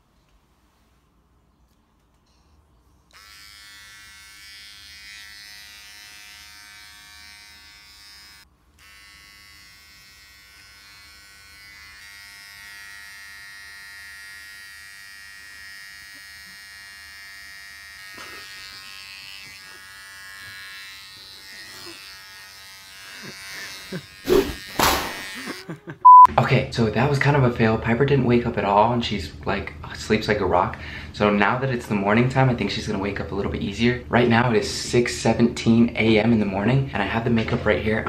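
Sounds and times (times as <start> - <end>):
electric hair trimmer buzzing: 3.1 - 26.0.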